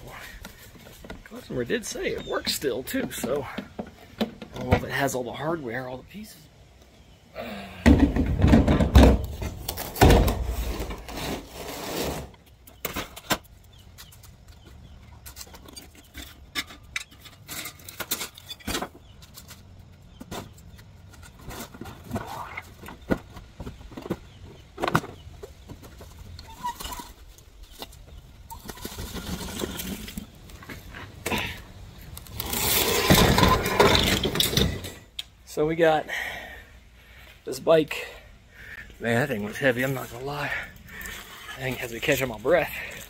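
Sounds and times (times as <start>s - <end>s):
knocks and clatter of junk: 7.8s - 11.1s, 12.8s - 19.6s, 32.8s - 35.1s.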